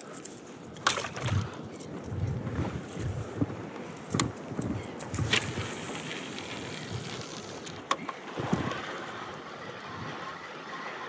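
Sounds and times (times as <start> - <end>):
wind noise on microphone: 0.8 - 10.6
water lapping and splashing: 4.8 - 11.0.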